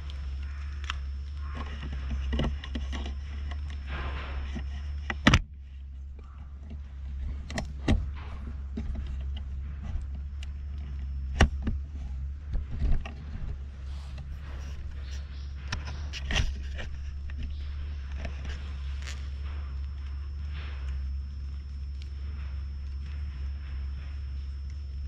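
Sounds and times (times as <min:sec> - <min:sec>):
camera handling rumble: 0:00.0 - 0:25.0
sharp clicks and knocks: 0:00.0 - 0:25.0.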